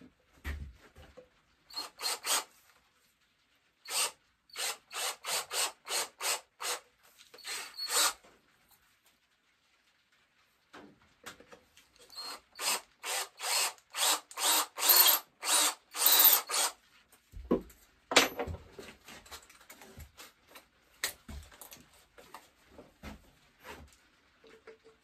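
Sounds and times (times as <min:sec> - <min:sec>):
cordless drill bursts: 0:01.7 - 0:02.5, 0:03.9 - 0:06.8, 0:07.4 - 0:08.2, 0:12.1 - 0:16.8.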